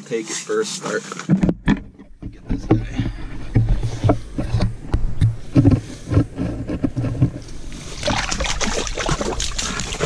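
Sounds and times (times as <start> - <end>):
water splashing: 7.7 - 10.0.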